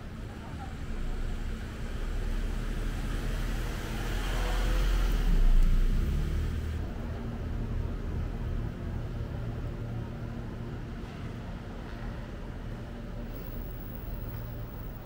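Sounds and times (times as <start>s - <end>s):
street traffic: 0.0s - 15.0s.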